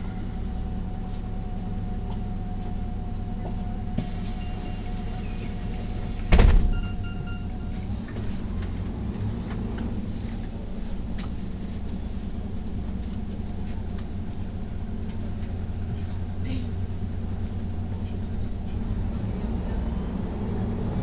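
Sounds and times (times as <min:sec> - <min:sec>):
bus diesel engine running: 0:00.0 - 0:21.0
compressed air hiss: 0:04.0 - 0:06.3
faint high beeps: 0:04.3 - 0:05.3, 0:06.7 - 0:07.9.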